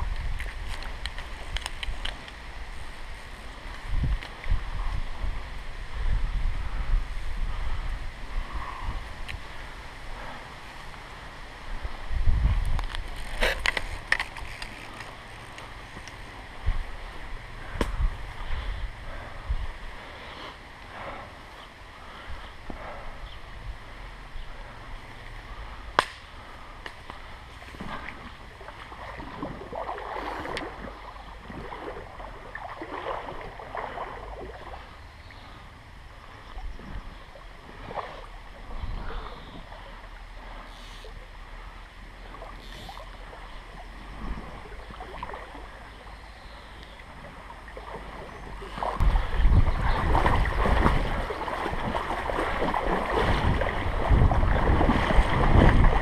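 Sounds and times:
wind rumble on microphone: 0.0s - 40.6s, 41.6s - 56.0s
shallow creek running: 0.0s - 56.0s
fishing rod knocks and rustles: 12.7s - 16.3s.

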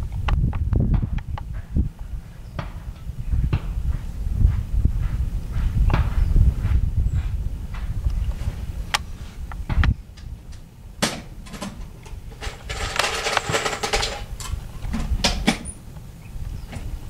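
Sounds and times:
wind rumble on microphone: 0.0s - 17.0s
handling clicks and knocks: 8.9s - 15.8s
rustling scrape: 12.2s - 14.3s.

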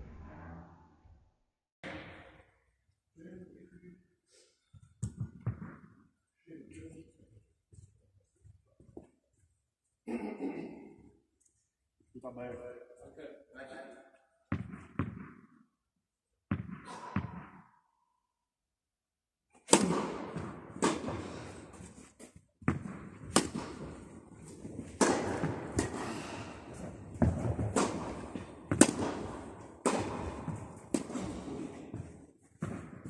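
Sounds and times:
tennis ball hit by rackets: 19.6s - 21.4s, 22.6s - 33.0s.

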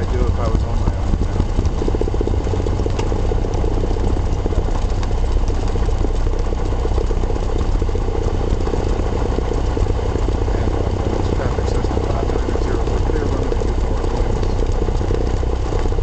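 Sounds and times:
aircraft engine and propeller throbbing: 0.0s - 16.0s.

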